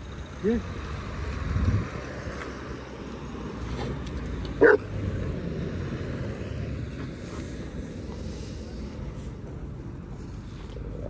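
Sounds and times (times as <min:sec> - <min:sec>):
vehicle engine and traffic rumble: 0:00.0 - 0:11.0
dog barking: 0:04.6 - 0:04.9.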